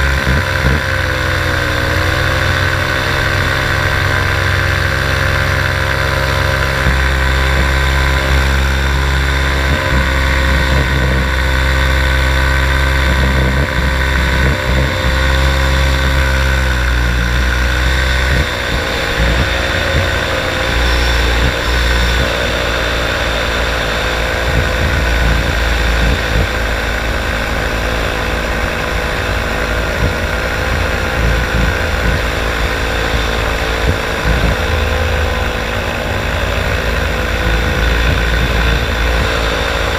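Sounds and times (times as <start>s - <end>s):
paramotor engine and propeller: 0.0s - 39.9s.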